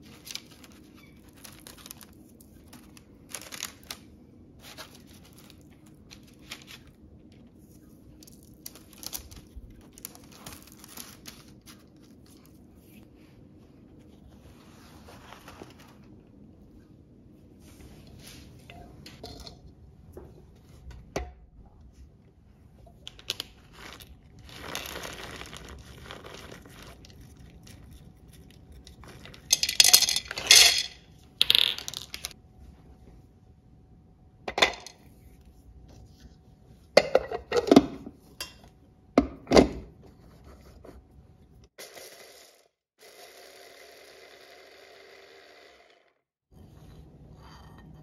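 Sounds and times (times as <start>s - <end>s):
dishes and utensils clattering: 18.7s - 19.7s, 29.3s - 31.0s, 37.0s - 38.7s.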